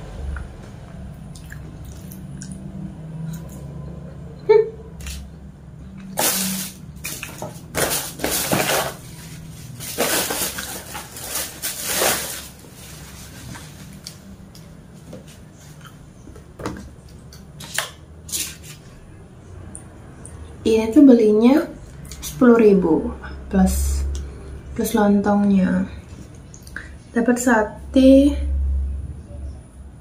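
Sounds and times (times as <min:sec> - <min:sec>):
paper rustling: 0:07.0 - 0:14.0.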